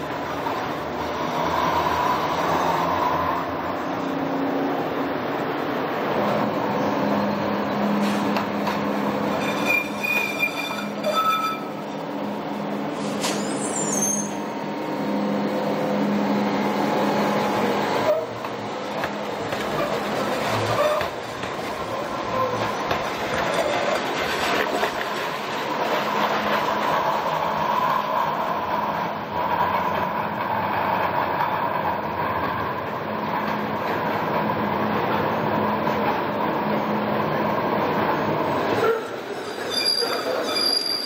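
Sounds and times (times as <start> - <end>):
light rail car humming: 0.0 - 41.0
high wheel squeal: 9.3 - 11.9, 13.1 - 14.5, 39.5 - 41.0.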